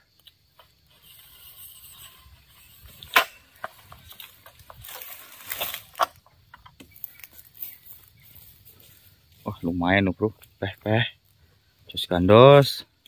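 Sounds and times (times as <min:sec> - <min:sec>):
palm fronds rustling: 0:00.4 - 0:12.7
pole sickle cracking wood: 0:02.0 - 0:07.9.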